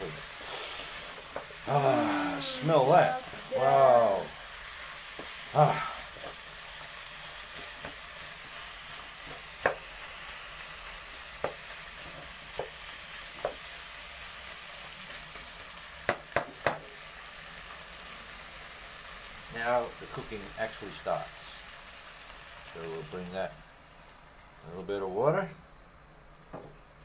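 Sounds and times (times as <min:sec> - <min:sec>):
meat sizzling in a pot: 0:00.0 - 0:27.0.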